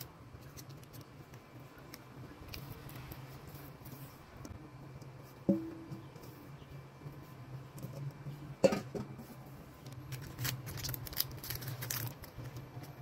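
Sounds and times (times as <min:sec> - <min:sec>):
parchment paper rustling: 0:00.0 - 0:04.4, 0:09.2 - 0:13.0
low steady hum: 0:00.0 - 0:13.0.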